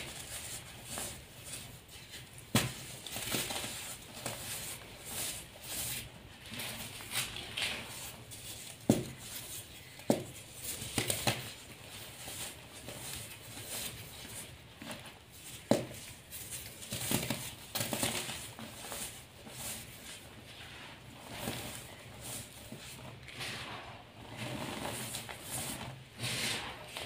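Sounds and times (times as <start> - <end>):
chalk powder crunching: 18.2 - 27.0.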